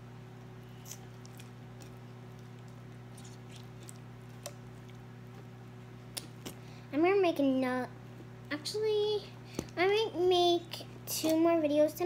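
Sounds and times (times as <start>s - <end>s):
slime squishing with sticky clicks: 0.7s - 5.1s.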